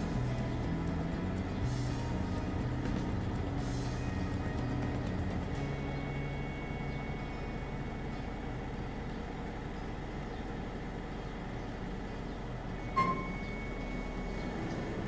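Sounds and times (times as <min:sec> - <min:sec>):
truck engine idling: 0:00.0 - 0:15.0.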